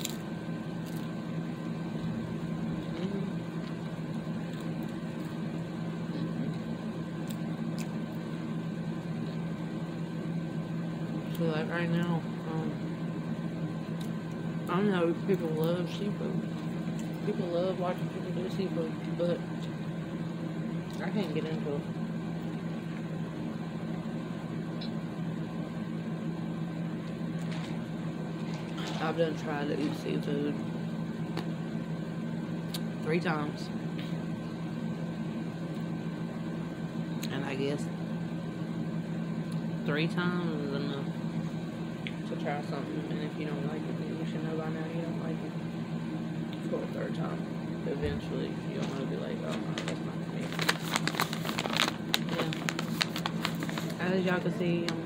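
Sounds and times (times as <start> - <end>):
steady low machine hum: 0.0 - 55.0.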